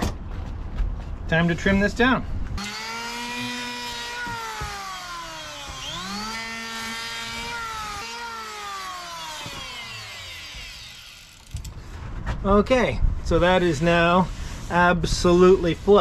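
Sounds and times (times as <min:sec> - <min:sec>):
electric hand planer cutting wood: 0:02.6 - 0:11.5.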